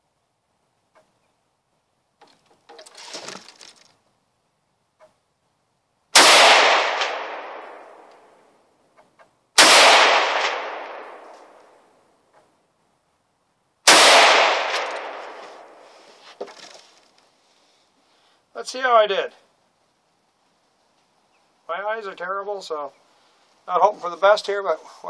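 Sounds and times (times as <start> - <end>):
rifle shots echoing: 6.2 - 8.4, 9.6 - 11.6, 13.9 - 15.8.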